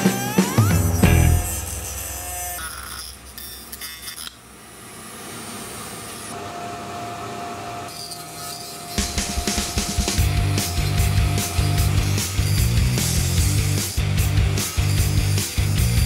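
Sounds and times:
steady high whine: 0.0 - 3.8, 9.1 - 13.8
rotary tool grinding coconut shell: 7.9 - 16.0.

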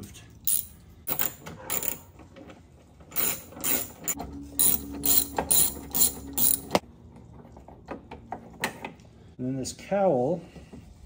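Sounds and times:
hand ratchet clicking: 0.5 - 2.0, 3.2 - 6.8.

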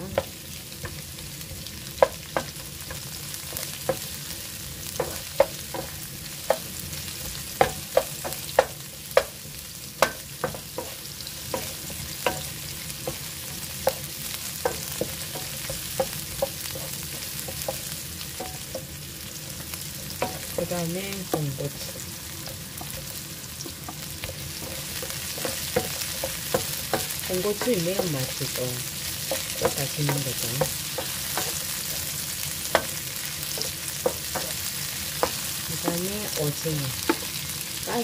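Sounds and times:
onions sizzling in a frying pan: 0.0 - 38.0
sharp clacks of stirring in pan: 10.0 - 18.9, 21.3 - 28.2, 29.2 - 36.2.

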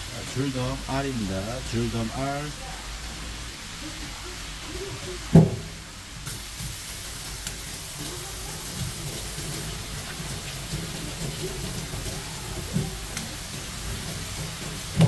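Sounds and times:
water hissing: 0.0 - 15.0.

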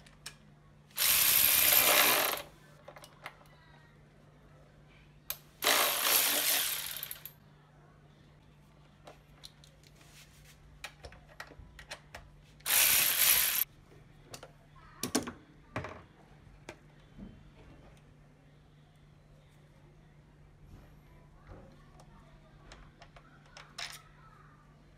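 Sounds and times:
cordless power driver running: 1.0 - 2.4, 12.7 - 13.6
tools and parts clinking: 5.6 - 7.4.

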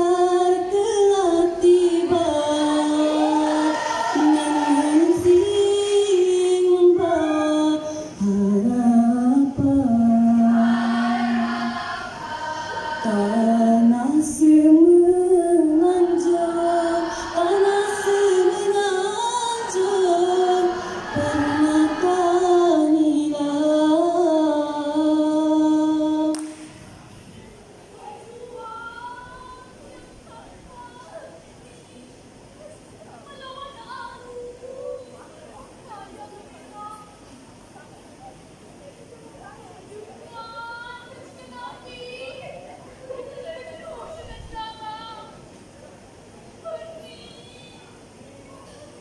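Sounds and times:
women's choir singing: 0.0 - 26.3.

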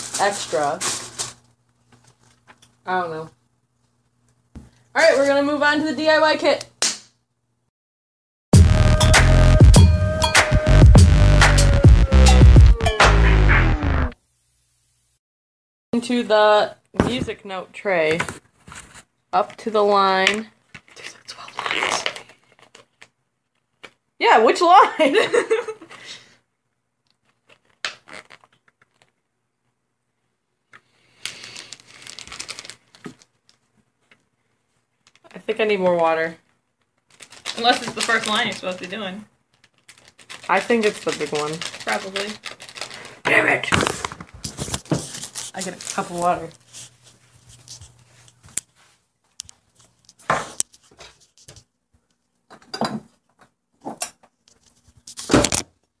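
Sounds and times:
plastic crinkling: 0.0 - 2.8, 20.6 - 24.0, 27.1 - 29.2, 30.9 - 34.3, 36.4 - 48.5.

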